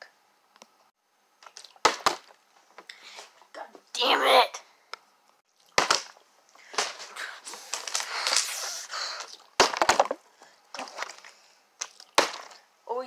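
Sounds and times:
plastic bottle clattering on wood: 9.6s - 10.2s.

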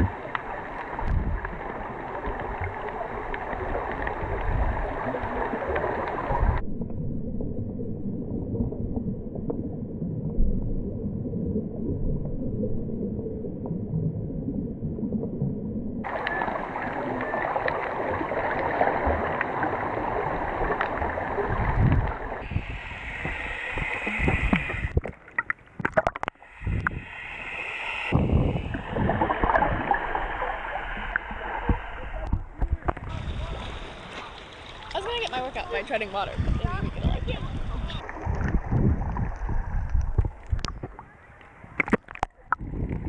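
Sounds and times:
muffled underwater gurgling: 0.0s - 43.0s
water sloshing: 16.0s - 42.6s.

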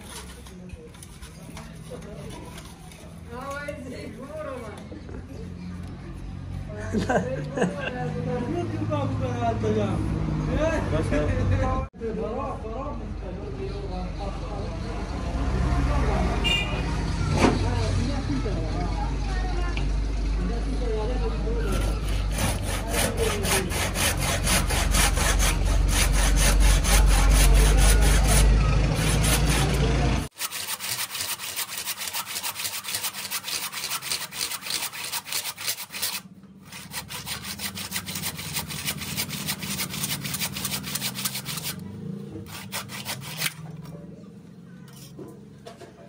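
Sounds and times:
hand saw cutting wood: 0.0s - 3.1s, 21.6s - 43.7s.

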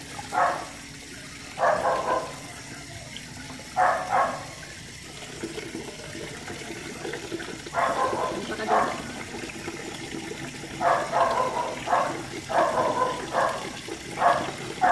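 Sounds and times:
water splashing into plastic basin: 0.0s - 14.9s.

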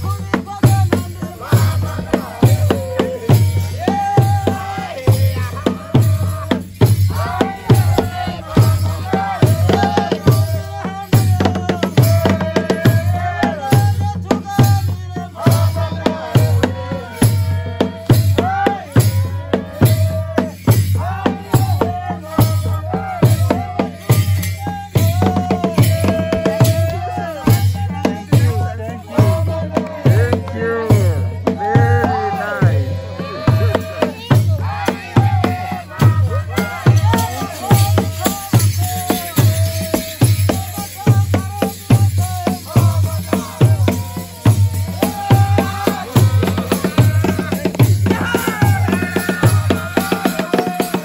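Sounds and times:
big wooden drums beating: 0.0s - 51.0s
voices singing a melody: 0.0s - 51.0s.

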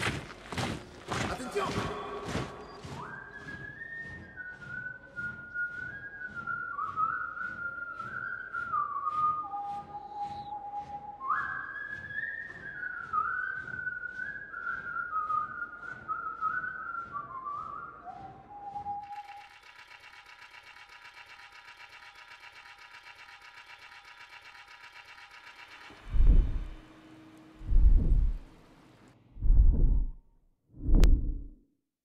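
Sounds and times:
person whistling a melody: 1.6s - 19.6s
steady soft beat: 26.1s - 26.8s, 27.6s - 28.5s, 29.4s - 30.2s.

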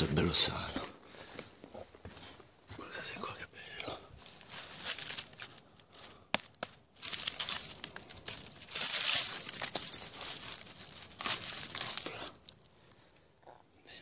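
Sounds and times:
dry leaves rustling and crackling: 4.1s - 13.0s.

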